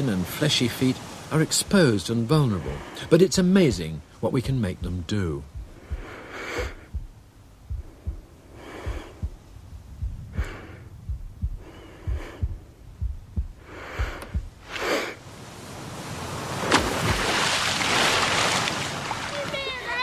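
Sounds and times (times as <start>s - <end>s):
soft low thumps: 1.7s - 15.2s, 16.8s - 17.4s
person breathing heavily: 2.5s - 3.1s, 5.6s - 15.2s.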